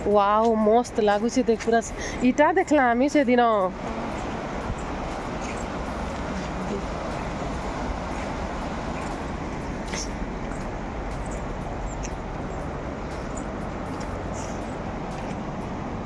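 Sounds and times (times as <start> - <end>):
river rapids rushing: 3.7 - 16.0.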